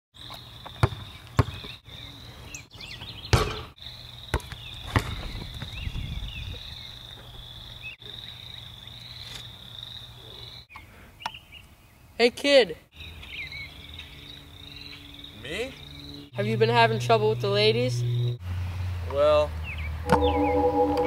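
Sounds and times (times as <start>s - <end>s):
birds chirping: 0.2s - 12.2s, 12.9s - 18.4s, 19.6s - 21.0s
basketball bouncing on court: 0.8s - 1.8s
insects droning: 3.8s - 10.6s.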